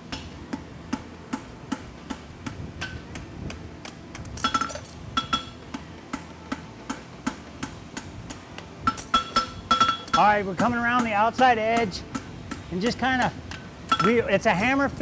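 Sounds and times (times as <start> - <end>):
hammer striking metal on anvil: 4.4 - 12.6, 13.9 - 14.2.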